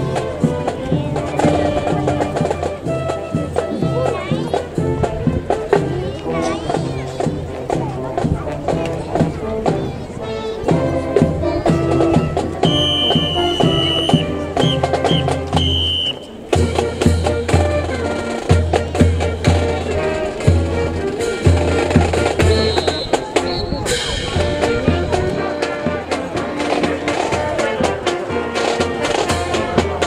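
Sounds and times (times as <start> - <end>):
snare drums: 0.0 - 9.9, 10.6 - 30.0
trumpets and brass: 0.0 - 30.0
cymbals: 11.8 - 30.0.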